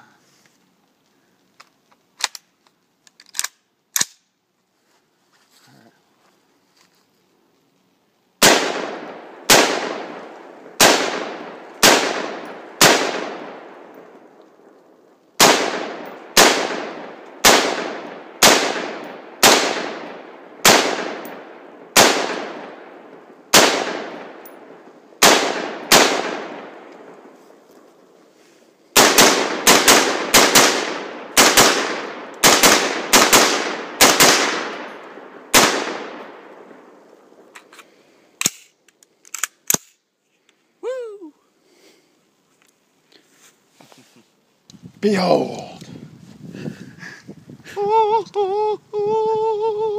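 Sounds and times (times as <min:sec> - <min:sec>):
rifle shots: 0:08.4 - 0:14.0, 0:15.4 - 0:27.2, 0:29.0 - 0:37.0.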